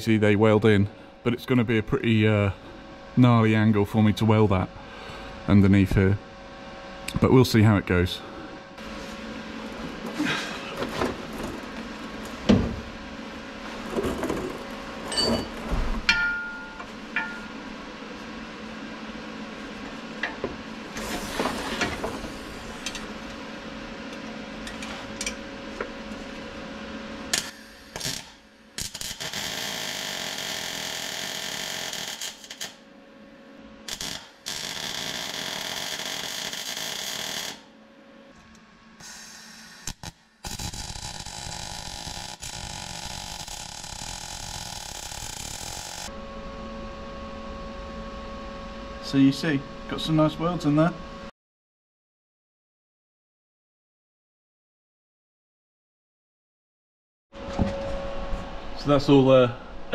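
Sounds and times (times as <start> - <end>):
welding hiss: 27.4 - 32.8, 33.9 - 37.6, 39.0 - 46.1.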